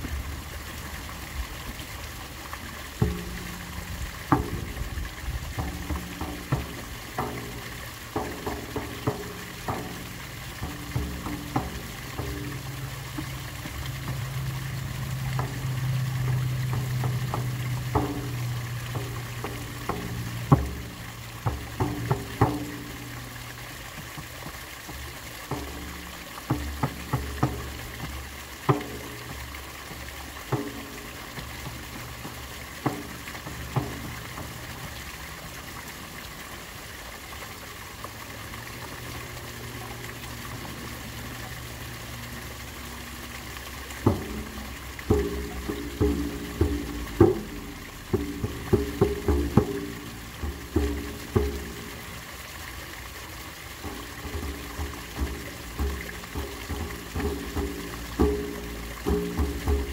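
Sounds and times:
water splashing from a pipe: 0.0 - 59.9
ringing drum strikes: 3.0 - 4.8, 5.5 - 14.3, 44.0 - 52.1, 53.8 - 59.9.

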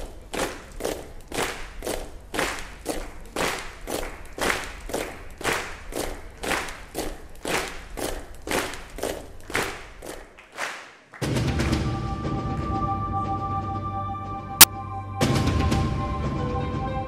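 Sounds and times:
audience clapping in unison: 0.0 - 11.9.

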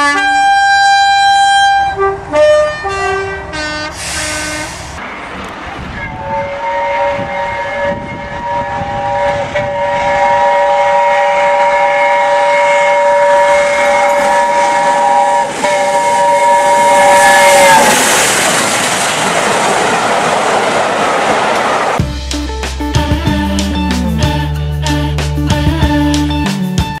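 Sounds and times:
train horn chord: 0.0 - 18.3
loud hiss: 3.9 - 5.2.

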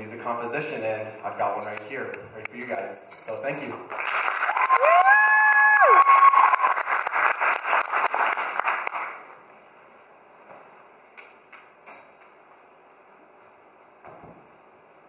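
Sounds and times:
audience applauding: 3.9 - 9.3
whooping cheers: 4.4 - 6.9.

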